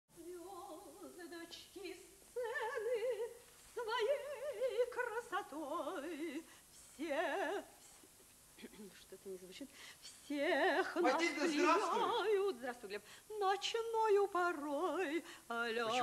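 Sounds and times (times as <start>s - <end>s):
woman singing operatically: 0.2s - 7.7s, 10.3s - 16.0s.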